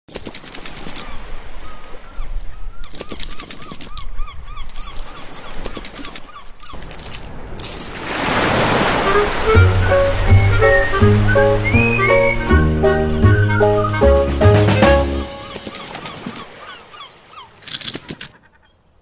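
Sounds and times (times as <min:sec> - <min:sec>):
splashing wave: 0:04.8 - 0:18.1
cheerful jingle with bass line: 0:09.1 - 0:15.6.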